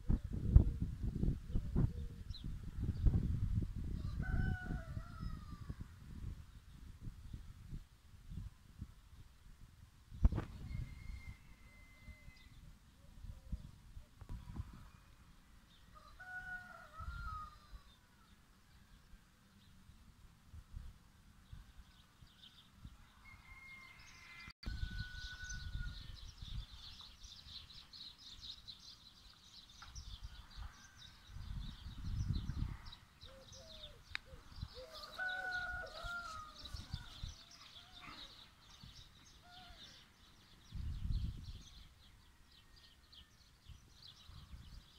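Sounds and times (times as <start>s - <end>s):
wind buffeting microphone: 0.0s - 15.0s, 24.6s - 27.7s, 29.9s - 42.0s, 43.6s - 44.9s
small birds chirping: 25.7s - 44.9s
lower bird calls: 32.4s - 40.4s.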